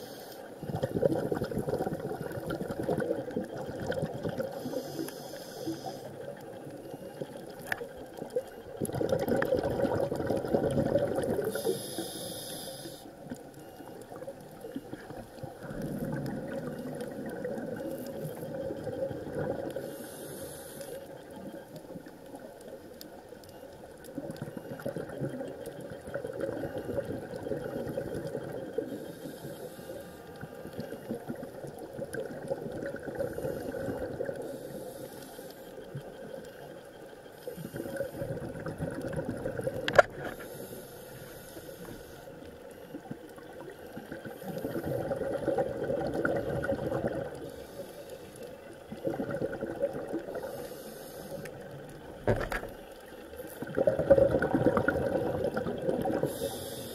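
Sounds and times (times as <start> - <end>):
muffled underwater water noise: 0.0 - 56.9
short hiss: 11.5 - 13.1.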